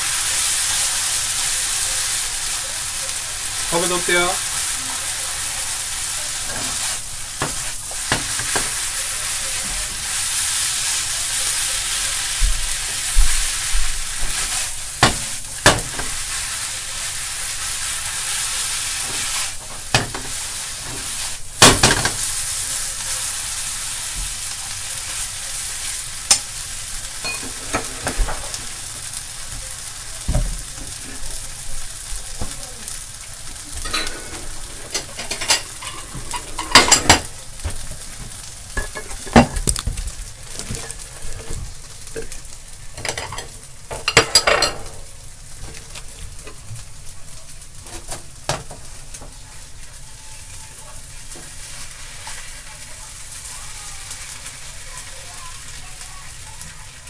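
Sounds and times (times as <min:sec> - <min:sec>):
food sizzling in frying pan: 0:00.0 - 0:57.0
spatula scraping pan: 0:33.7 - 0:37.3.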